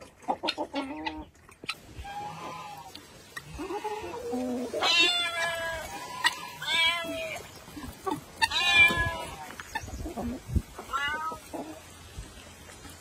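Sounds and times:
cat meowing: 0:08.5 - 0:09.4, 0:10.9 - 0:11.4.

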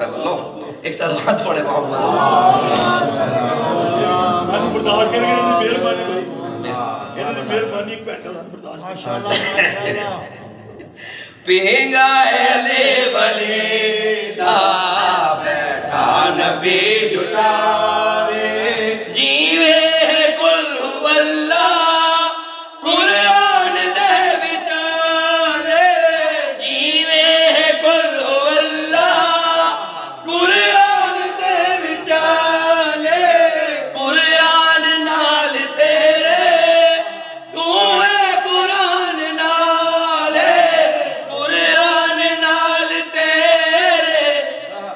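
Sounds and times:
men chanting into a microphone: 0:00.0 - 0:10.6, 0:11.4 - 0:44.9.

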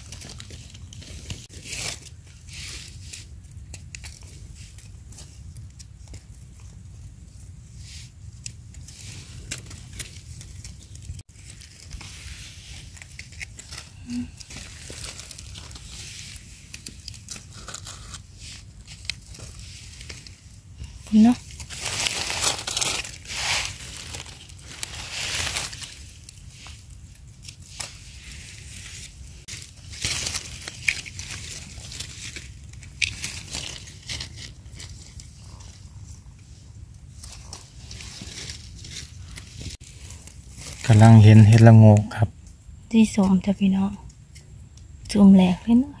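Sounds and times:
knife scraping soil: 0:00.0 - 0:05.9, 0:07.7 - 0:41.7
dry leaves rustling and crackling: 0:00.0 - 0:42.3.

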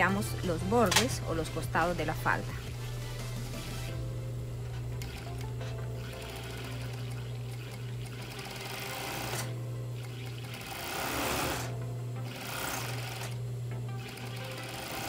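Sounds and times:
serger sewing machine running: 0:04.6 - 0:15.0.

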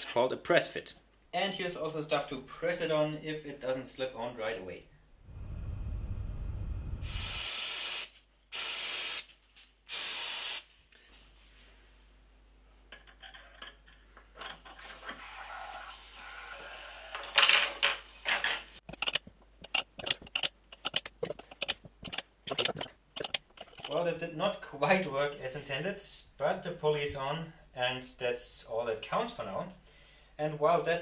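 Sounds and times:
cold spray hissing: 0:06.7 - 0:10.9, 0:14.7 - 0:17.3
quick metallic clicks: 0:18.8 - 0:24.0
metal scraping: 0:18.8 - 0:24.1.

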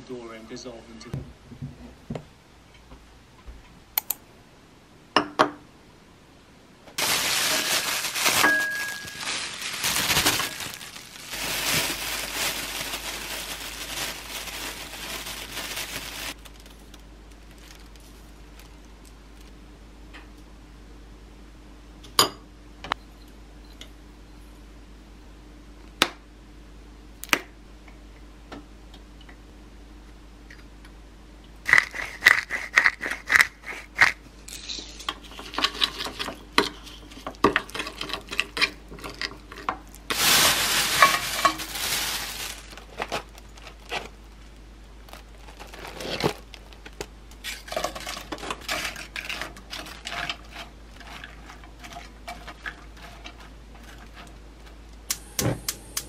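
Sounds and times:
plastic bag rustling: 0:07.0 - 0:19.5, 0:40.0 - 0:54.3.

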